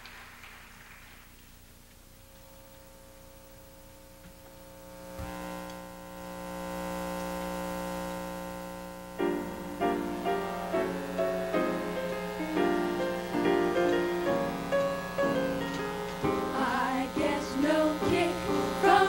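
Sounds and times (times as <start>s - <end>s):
held band chord: 9.1s - 19.0s
rhythmic piano chords: 9.2s - 19.0s.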